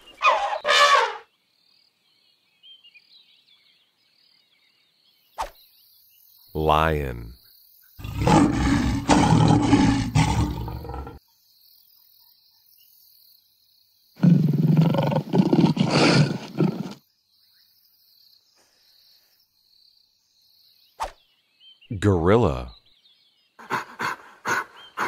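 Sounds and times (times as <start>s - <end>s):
lion roaring: 8.0s - 11.2s, 14.2s - 17.0s.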